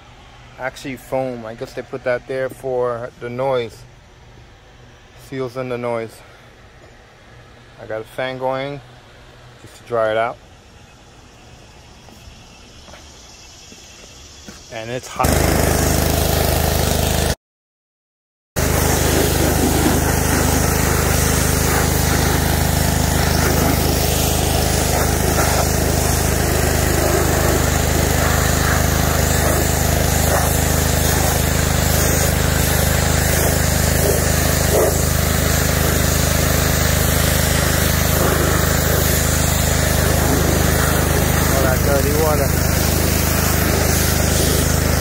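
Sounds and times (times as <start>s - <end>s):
pressure washer spray hissing: 13.1s - 17.4s, 18.6s - 45.0s.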